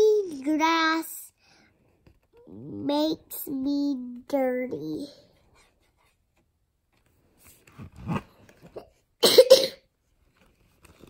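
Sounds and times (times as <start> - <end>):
loud cough: 9.2 - 9.9.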